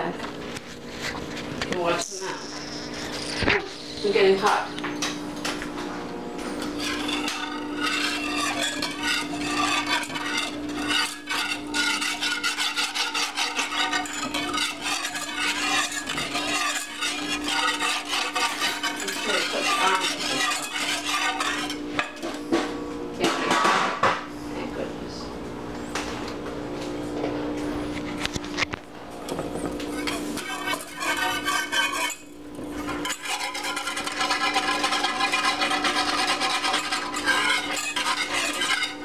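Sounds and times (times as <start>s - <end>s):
utensil scraping metal saucepan: 6.4s - 22.7s, 29.8s - 39.0s.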